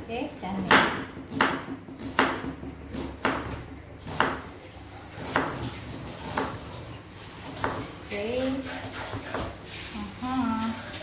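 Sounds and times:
knife chopping on cutting board: 0.6 - 4.5, 5.2 - 6.7, 7.4 - 7.9, 8.6 - 9.5.

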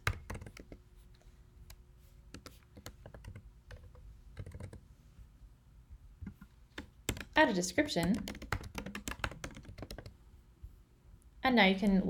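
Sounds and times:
faint computer keyboard keystrokes: 0.0 - 0.8, 1.6 - 4.8, 6.2 - 10.2.

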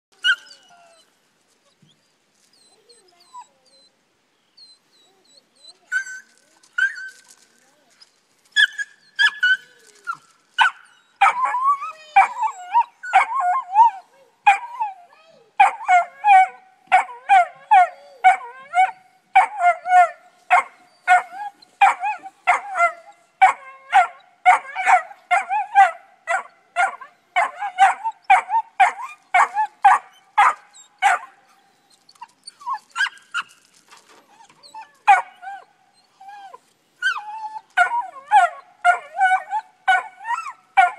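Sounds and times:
puppies yipping barks: 8.6 - 15.0, 15.6 - 31.4, 34.7 - 35.7, 37.0 - 40.9.

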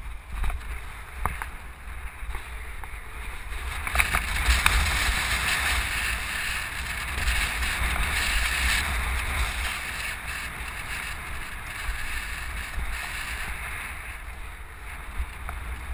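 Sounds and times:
wind rushing over microphone: 0.0 - 15.9.

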